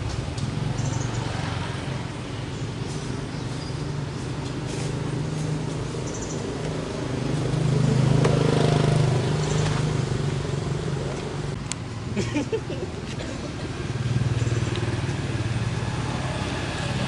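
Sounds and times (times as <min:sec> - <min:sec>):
passing vehicle engine drone: 0:03.9 - 0:12.0, 0:13.1 - 0:17.0.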